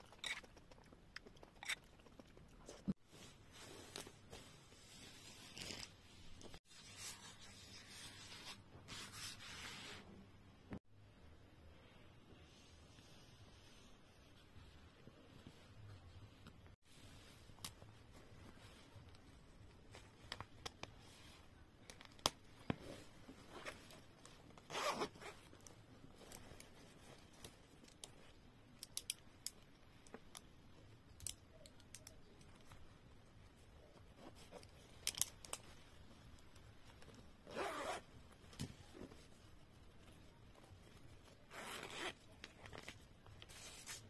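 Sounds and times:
light clicks and handling noises: 0:14.3 - 0:37.4
zipper rasping: 0:24.7 - 0:25.4, 0:37.4 - 0:38.0, 0:41.5 - 0:42.2.

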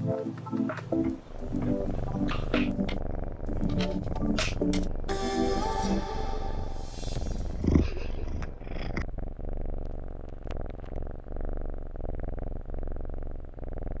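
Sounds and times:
rubbing noises: 0:00.4 - 0:04.9
cat purring: 0:00.6 - 0:14.0.

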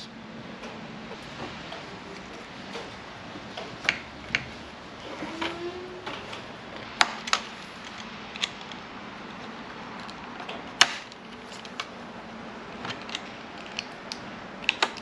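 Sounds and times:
hard plastic clicks and snaps: 0:12.9 - 0:15.0.

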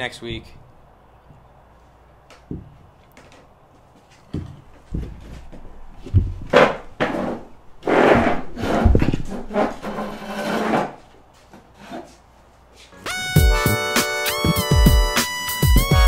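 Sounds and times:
chairs shifting: 0:02.4 - 0:13.0
scraping and rubbing on table: 0:07.1 - 0:11.0.

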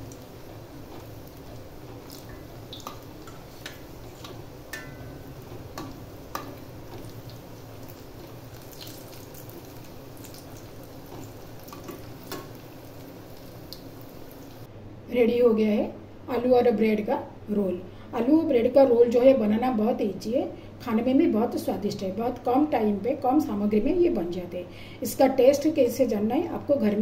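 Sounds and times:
rolls deep-frying in oil: 0:00.0 - 0:14.7.

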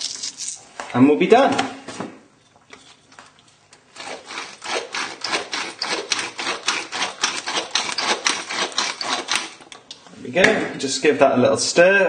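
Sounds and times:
pepper mill grinding: 0:00.0 - 0:00.6, 0:04.0 - 0:10.0.

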